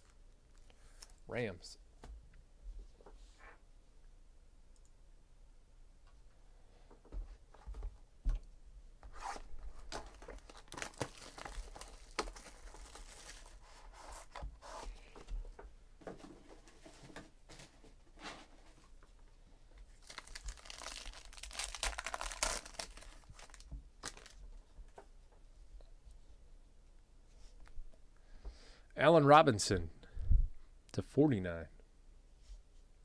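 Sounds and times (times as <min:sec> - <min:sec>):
shrink wrap tearing and crinkling: 0:09.2 - 0:13.8, 0:19.9 - 0:24.4.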